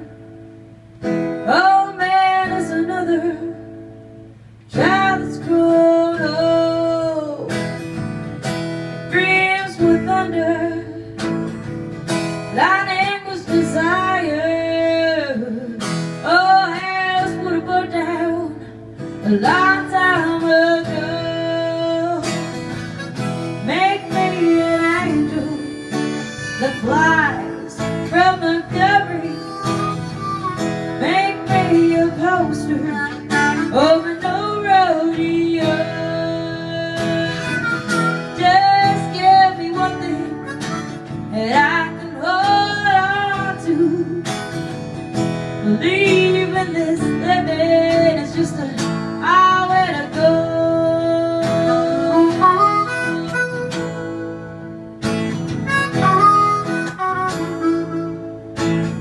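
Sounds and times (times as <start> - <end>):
acoustic guitar: 0.0 - 59.0
harmonica solo: 22.3 - 34.5, 37.0 - 41.4, 51.5 - 59.0.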